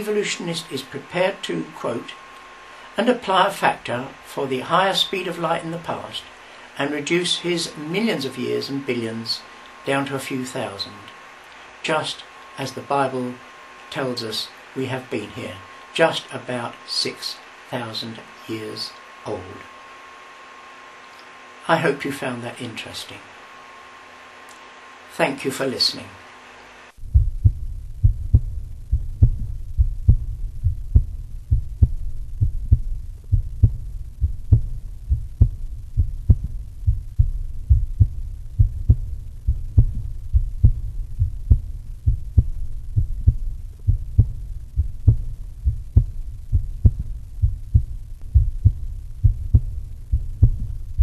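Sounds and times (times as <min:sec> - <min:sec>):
steady low hum: 0:00.0 - 0:51.0
deep regular thumping: 0:27.0 - 0:51.0.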